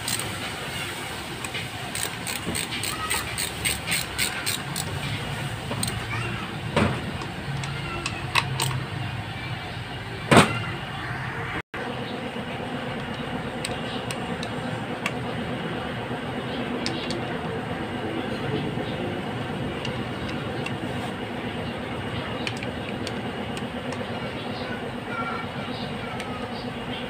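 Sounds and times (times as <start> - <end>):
steady background hum: 0.0 - 27.0
clicks and knocks of metal parts: 1.4 - 6.1, 6.8 - 8.8, 22.4 - 24.1.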